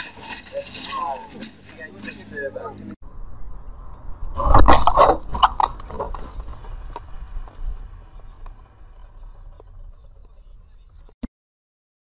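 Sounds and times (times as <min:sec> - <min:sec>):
car road and engine rumble: 0:02.8 - 0:11.2.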